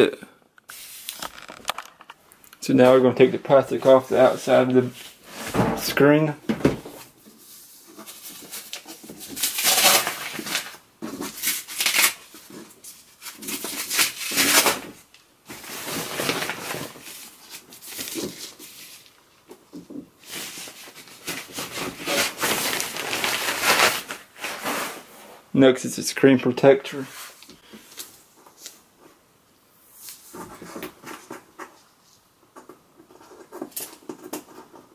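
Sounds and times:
plastic film rustling and crinkling: 0:00.7 - 0:06.2, 0:07.0 - 0:25.5.

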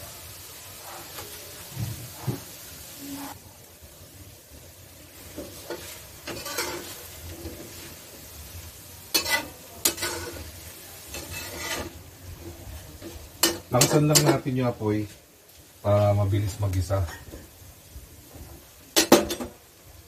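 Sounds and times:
sizzle of frying: 0:00.0 - 0:20.0
metal spatula scraping a wok: 0:05.2 - 0:08.4, 0:09.0 - 0:14.6.

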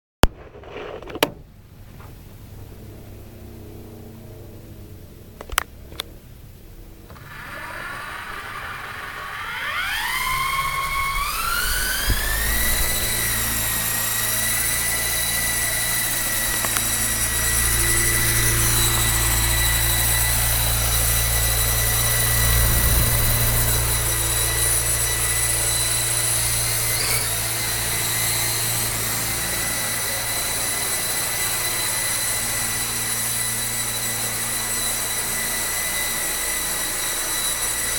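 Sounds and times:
electric helicopter motor whine: 0:06.8 - 0:37.9
rotor low hum: 0:08.0 - 0:28.0.

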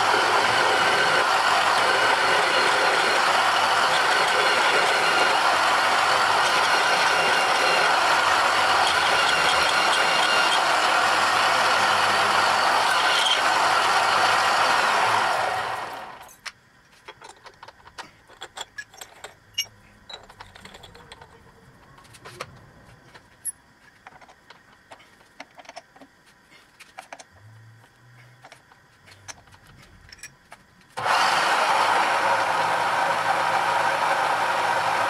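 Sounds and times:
drill spindle running into steel: 0:00.0 - 0:16.3
metal clicks and clinks: 0:16.2 - 0:21.4.

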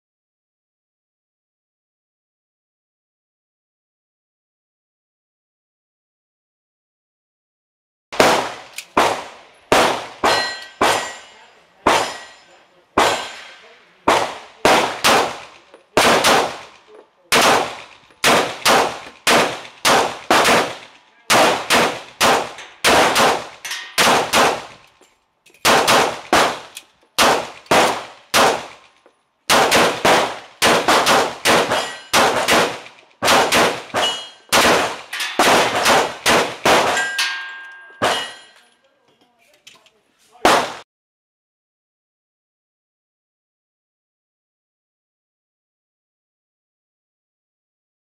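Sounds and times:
pistol shots: 0:08.2 - 0:12.4, 0:13.0 - 0:24.9, 0:25.6 - 0:28.9, 0:29.5 - 0:38.5, 0:40.4 - 0:40.8.

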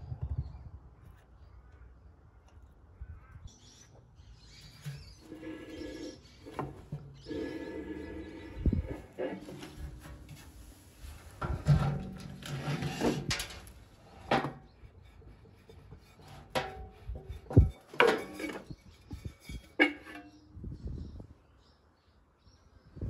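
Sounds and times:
metal knocks clanks and scraping: 0:04.5 - 0:20.5.

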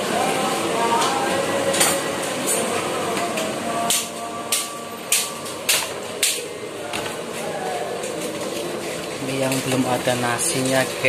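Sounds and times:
kitchen background clatter: 0:03.9 - 0:11.0.

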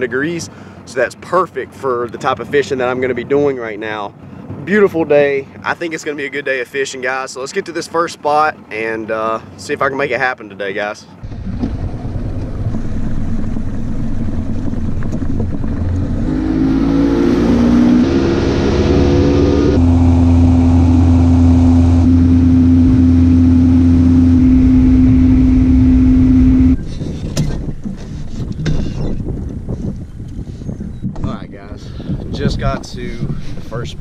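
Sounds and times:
outboard motor running: 0:11.2 - 0:16.4, 0:18.5 - 0:32.3.

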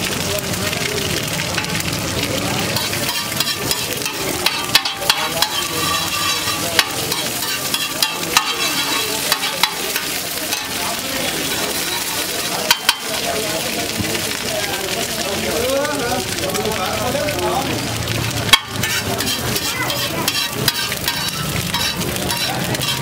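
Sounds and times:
egg sizzling on a griddle: 0:00.0 - 0:23.0
metal spatula scraping griddle: 0:02.7 - 0:13.2, 0:18.2 - 0:23.0.

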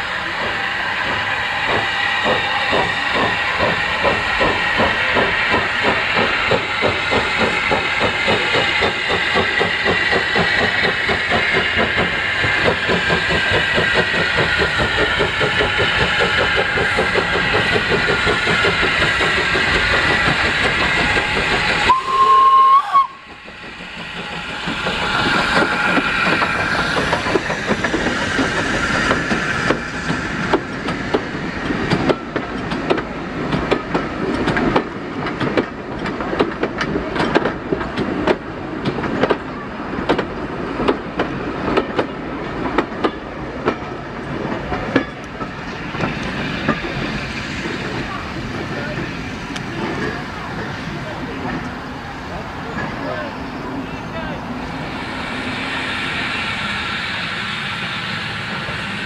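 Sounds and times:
steam hissing: 0:00.0 - 0:35.1, 0:43.9 - 0:59.0
steam locomotive pulling away: 0:00.0 - 0:59.0
train wheels clicking over rail joints: 0:00.2 - 0:53.2
steam whistle: 0:21.7 - 0:23.3.

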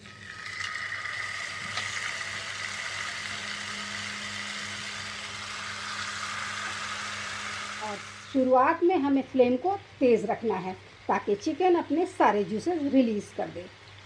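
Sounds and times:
chicken sizzling in hot fat: 0:00.0 - 0:08.6
low steady hum: 0:00.0 - 0:14.0.

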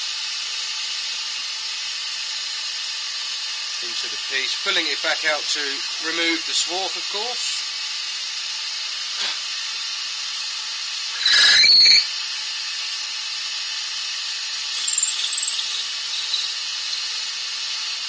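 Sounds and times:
wood lathe hissing: 0:00.0 - 0:18.0
drill bit squealing: 0:11.0 - 0:13.7, 0:14.7 - 0:18.0.

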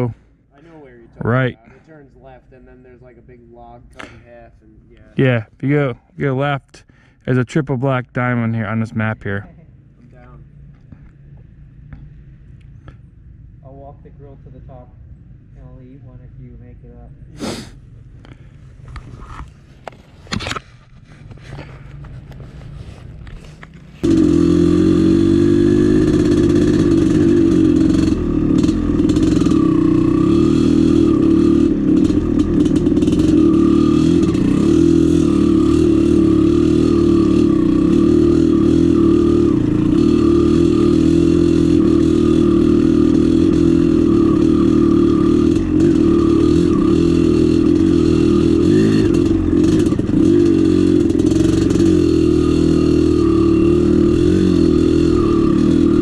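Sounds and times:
dirt bike engine running: 0:21.2 - 0:56.0.

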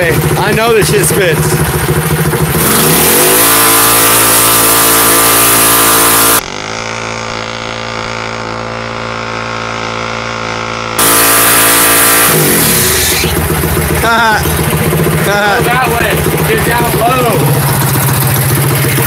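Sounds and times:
small engine revving high: 0:02.4 - 0:14.6.

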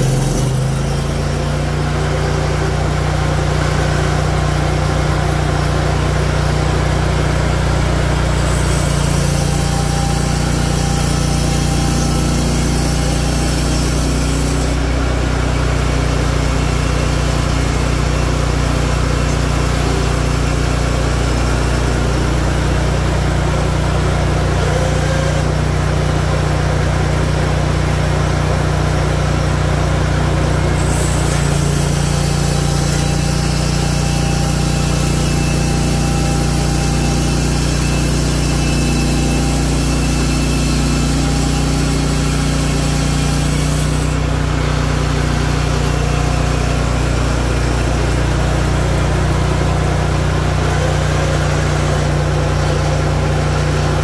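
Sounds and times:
band blade cutting wood: 0:00.0 - 0:02.8, 0:08.2 - 0:14.8, 0:30.8 - 0:44.3
sawmill engine running: 0:00.0 - 0:54.0.

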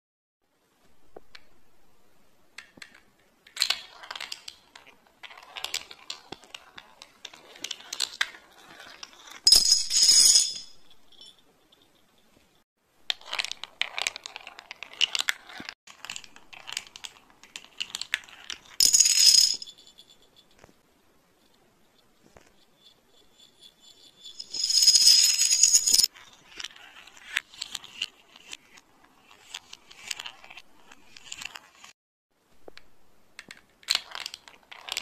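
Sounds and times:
marble rattling down plastic track: 0:13.1 - 0:19.5, 0:33.4 - 0:35.0.

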